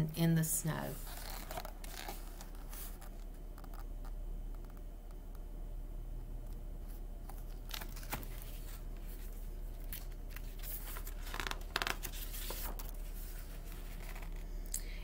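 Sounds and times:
book pages rustling: 0:00.9 - 0:03.9, 0:06.8 - 0:14.5.

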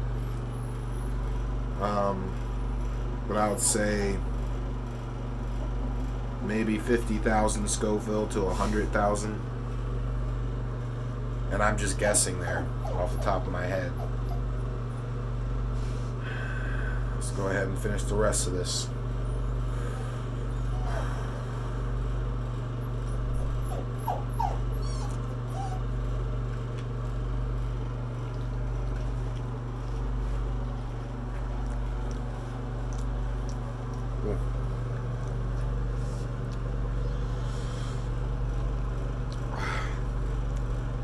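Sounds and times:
steady low hum: 0:00.0 - 0:41.0
high whimpering whines: 0:12.4 - 0:15.2, 0:19.3 - 0:21.4, 0:22.8 - 0:26.3, 0:36.8 - 0:38.3.

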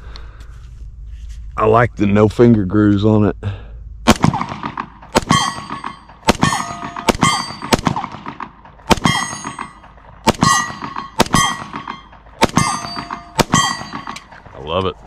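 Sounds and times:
pistol shots: 0:04.1 - 0:14.5
steel target ringing: 0:05.0 - 0:14.4.

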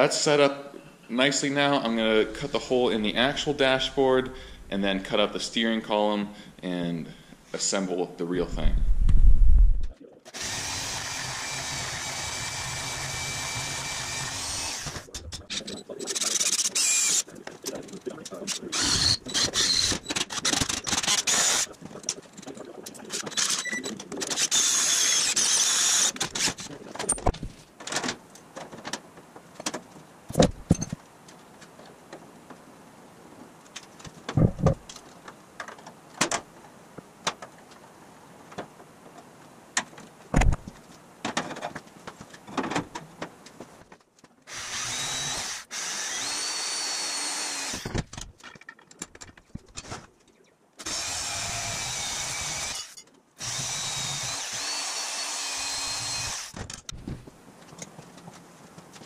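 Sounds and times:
drill boring through aluminum: 0:10.3 - 0:15.1, 0:16.2 - 0:17.2, 0:18.7 - 0:21.7, 0:24.4 - 0:26.5, 0:44.5 - 0:48.0, 0:50.8 - 0:56.6
knocks and clunks of hand work: 0:34.0 - 0:35.0
power tool running: 0:44.5 - 0:47.9, 0:50.8 - 0:56.6.

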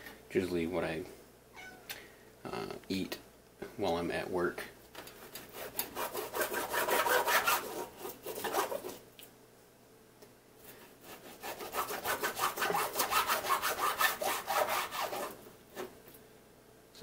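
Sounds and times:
knife sawing through fish: 0:05.4 - 0:09.0, 0:11.0 - 0:15.4.

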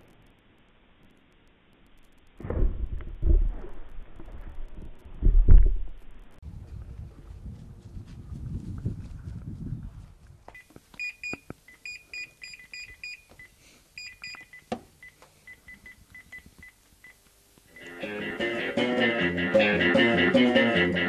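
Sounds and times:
wind rumble on microphone: 0:02.5 - 0:10.5.

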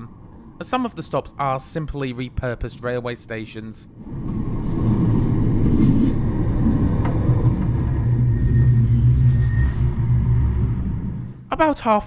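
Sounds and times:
faint high whine: 0:00.0 - 0:11.8
tram wheels rumbling on track: 0:04.0 - 0:11.4.

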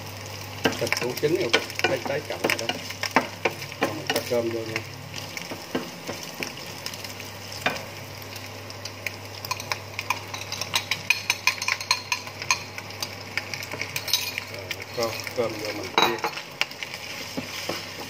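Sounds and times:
meat sizzling in a frying pan: 0:00.0 - 0:18.0
spatula stirring in a pan: 0:00.6 - 0:07.0, 0:16.6 - 0:18.0.

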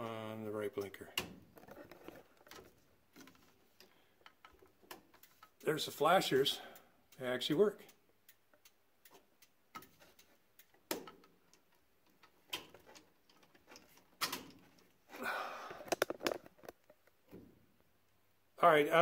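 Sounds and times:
rustling handling noise: 0:01.4 - 0:06.4, 0:09.1 - 0:18.0
hazard flasher relay clicking: 0:03.8 - 0:15.0.

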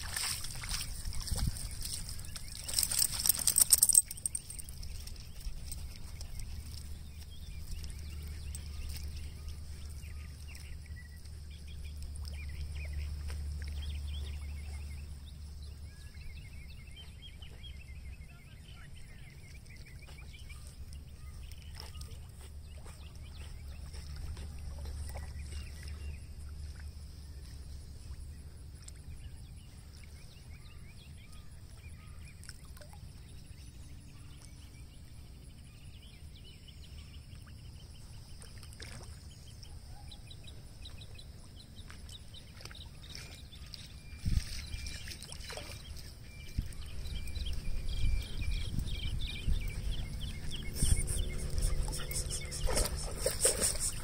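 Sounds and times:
water splashing: 0:00.0 - 0:06.9, 0:38.3 - 0:39.4, 0:41.9 - 0:47.6, 0:49.5 - 0:54.0
wind rumbling on microphone: 0:00.0 - 0:17.6, 0:42.4 - 0:54.0
small birds chirping: 0:00.2 - 0:54.0.

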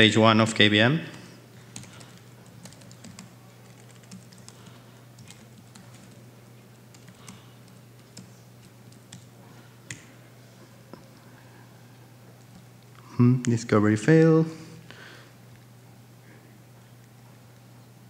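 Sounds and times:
steady low hum: 0:00.0 - 0:18.0
laptop keyboard typing: 0:01.1 - 0:10.1.

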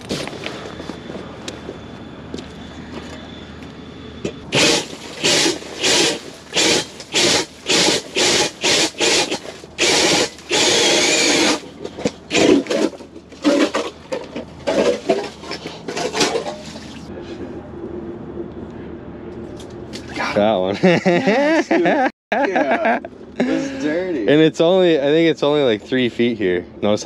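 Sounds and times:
cordless drill bursts: 0:04.5 - 0:11.7, 0:12.3 - 0:12.9.

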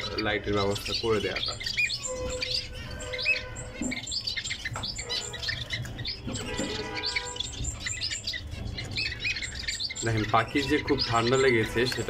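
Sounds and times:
finches chirping: 0:00.0 - 0:12.0
whistled bird notes: 0:00.0 - 0:12.0.

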